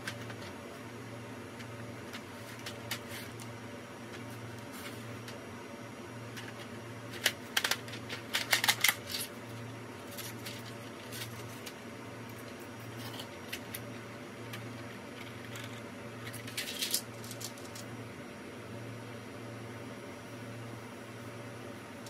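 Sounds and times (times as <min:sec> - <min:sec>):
plastic tray clicking and crackling: 0:07.2 - 0:09.3.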